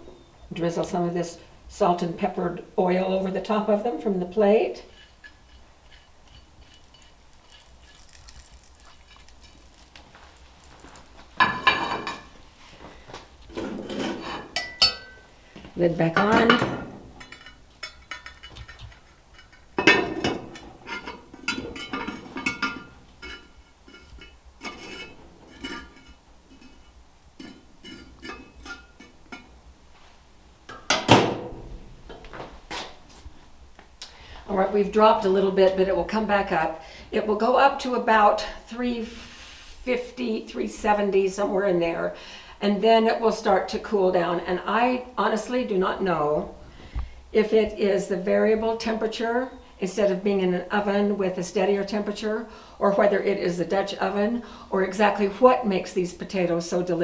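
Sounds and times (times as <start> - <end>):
cast iron cookware clanking: 4.9 - 10.0, 11.3 - 12.4, 13.6 - 15.2, 16.2 - 29.5
metal tongs clinking on charcoal: 5.0 - 12.3, 14.6 - 15.2, 17.2 - 20.0.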